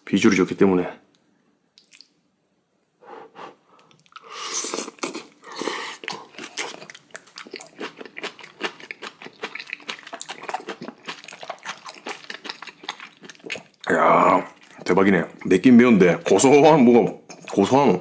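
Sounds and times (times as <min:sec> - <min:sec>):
person slurping: 0:03.2 - 0:06.9
wet chewing with smacks: 0:06.0 - 0:13.9.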